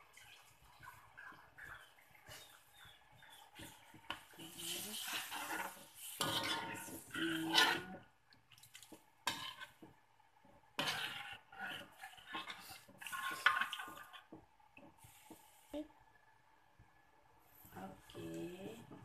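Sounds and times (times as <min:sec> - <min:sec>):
metal ladle scraping a wok: 0:04.4 - 0:08.0, 0:09.2 - 0:09.8, 0:10.8 - 0:14.0.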